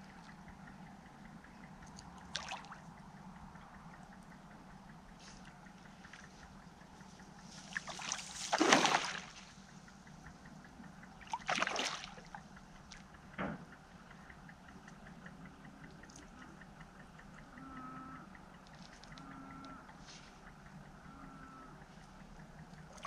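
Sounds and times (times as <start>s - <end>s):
fish slapping water: 1.8s - 2.9s, 7.6s - 9.6s, 11.2s - 13.0s
fish splashing at water surface: 2.2s - 2.8s, 7.6s - 9.5s, 11.2s - 12.4s.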